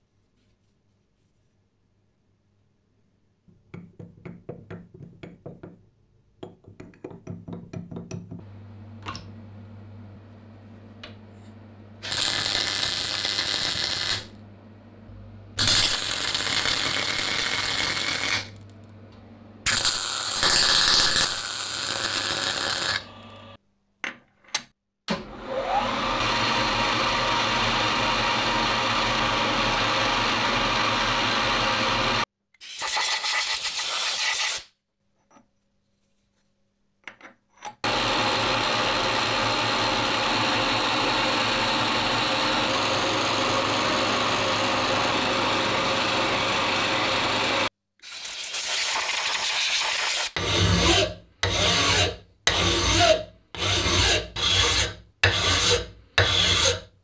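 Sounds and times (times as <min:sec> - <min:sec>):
welder buzzing: 0:12.0 - 0:14.4, 0:15.0 - 0:23.6, 0:37.8 - 0:47.7
milling machine running: 0:26.0 - 0:32.2, 0:37.9 - 0:47.7.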